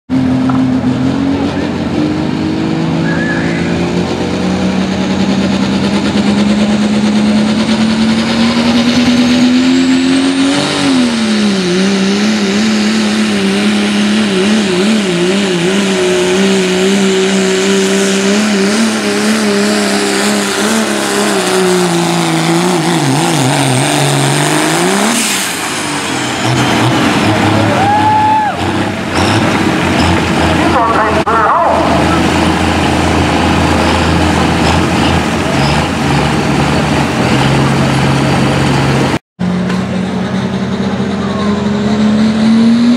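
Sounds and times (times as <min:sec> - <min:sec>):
diesel engine at full throttle: 0:00.1 - 0:42.9
high turbo whistle: 0:03.0 - 0:04.2.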